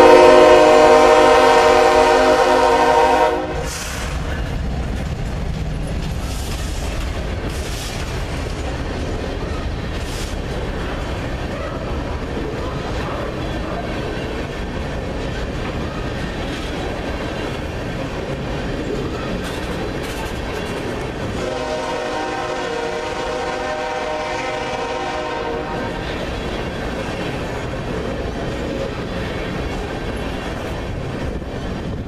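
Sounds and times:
train horn: 0:00.0 - 0:03.8, 0:21.3 - 0:26.2
train wheels rumbling on rail: 0:00.0 - 0:32.0.

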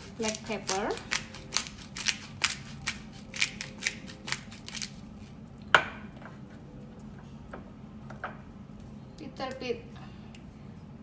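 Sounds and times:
pepper grinder grinding: 0:00.0 - 0:05.3.

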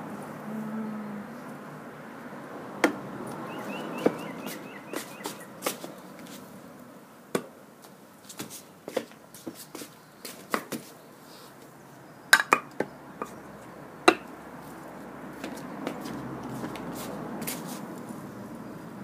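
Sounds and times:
slipper footsteps: 0:03.3 - 0:06.5, 0:07.8 - 0:11.0, 0:14.5 - 0:18.4.

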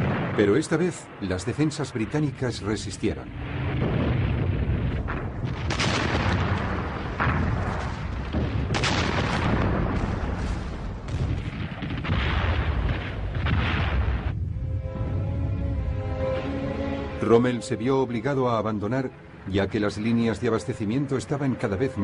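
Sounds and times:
explosions: 0:00.0 - 0:01.3, 0:03.0 - 0:14.6
low battle rumble: 0:00.0 - 0:22.0
gunfire: 0:03.6 - 0:14.3.

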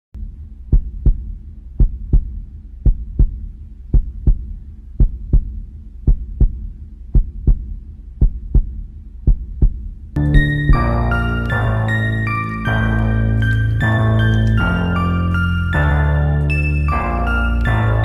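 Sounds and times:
heartbeat thumps: 0:00.2 - 0:11.8
steady low hum: 0:00.2 - 0:18.0.

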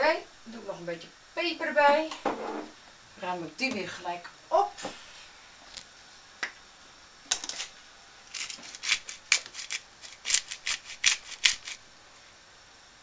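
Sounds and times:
pepper grinder grinding: 0:07.3 - 0:11.8.

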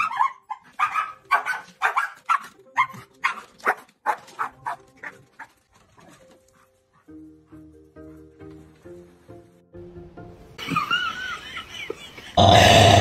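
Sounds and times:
dog barking: 0:00.0 - 0:05.2.

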